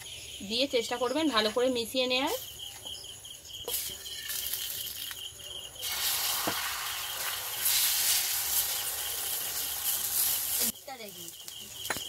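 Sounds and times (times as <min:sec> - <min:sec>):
egg sizzling in oil on a griddle: 0:03.6 - 0:05.2, 0:05.8 - 0:12.0.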